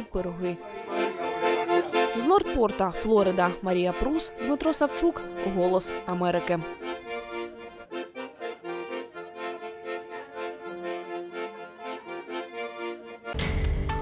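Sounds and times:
accordion playing chords: 0.0 - 14.0
loud theme tune: 5.2 - 14.0.

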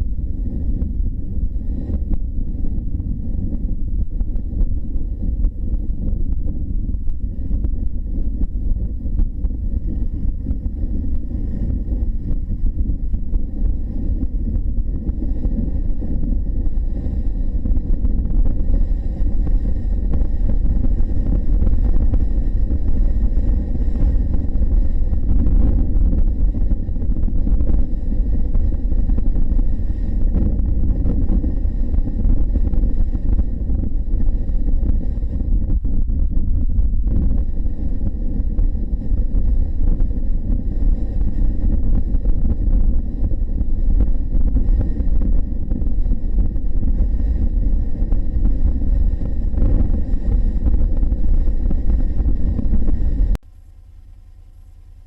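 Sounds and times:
wind and road noise: 0.0 - 55.0.

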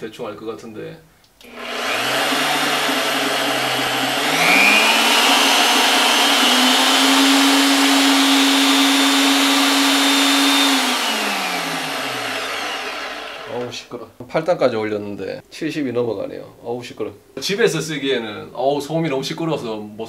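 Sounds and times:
drill press motor whining: 1.4 - 13.8.

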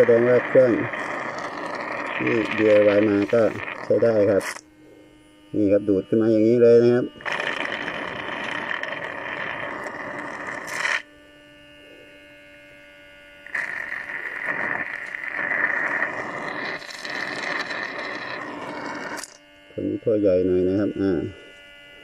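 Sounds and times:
rushing suction noise: 0.0 - 4.6, 7.2 - 11.0, 13.5 - 19.4
pump motor hum: 0.0 - 22.0.

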